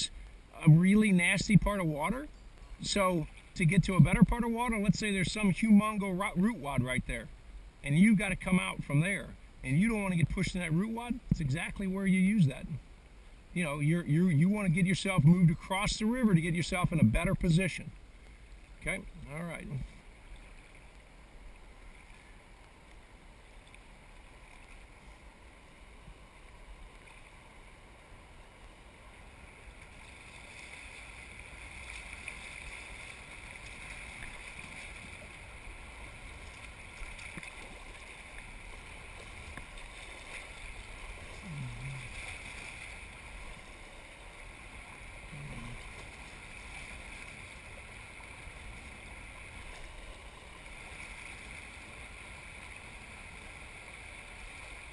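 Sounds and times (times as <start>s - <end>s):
river water rushing and splashing: 0.0s - 54.9s.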